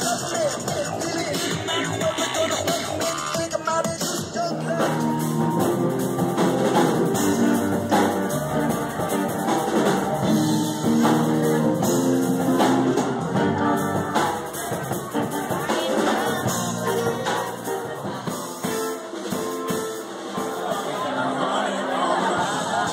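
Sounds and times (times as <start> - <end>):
rock music with drums and guitar: 0.0 - 20.8.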